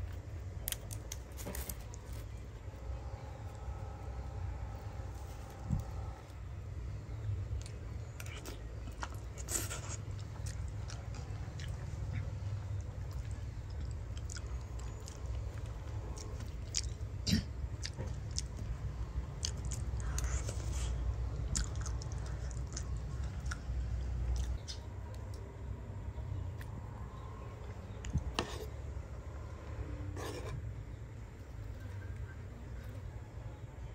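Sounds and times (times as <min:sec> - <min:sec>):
person chewing with crunches: 0:00.0 - 0:25.0
steady low rumble: 0:00.0 - 0:33.9.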